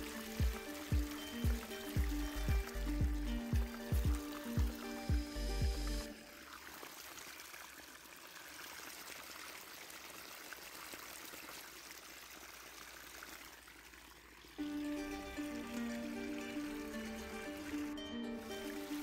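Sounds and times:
background music: 0:00.0 - 0:06.3, 0:14.6 - 0:19.0
hot oil sizzling: 0:00.0 - 0:06.4.

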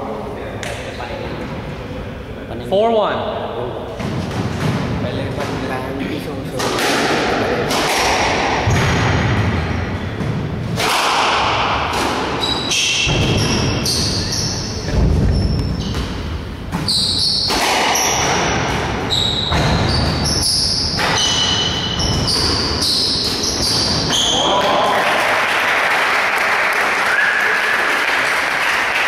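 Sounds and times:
squash ball cracking: 0:06.6 - 0:09.3, 0:10.7 - 0:14.2, 0:15.0 - 0:19.9
shoes squeaking on wooden floor: 0:12.4 - 0:24.4.

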